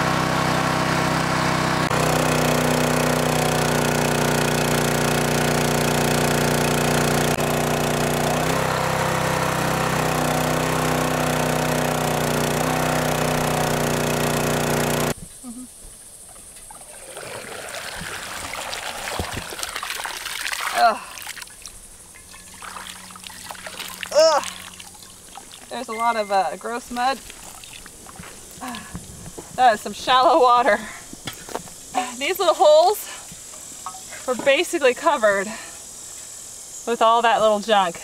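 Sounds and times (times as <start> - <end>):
water pump engine running: 0.0 - 15.2, 22.2 - 30.9
water trickling and sloshing: 16.2 - 29.2.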